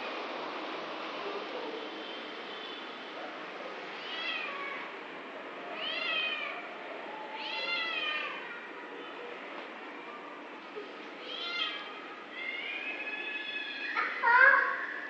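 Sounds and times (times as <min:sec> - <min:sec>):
cat meowing: 0:04.0 - 0:04.9, 0:05.8 - 0:06.6, 0:07.3 - 0:08.5, 0:11.2 - 0:14.7.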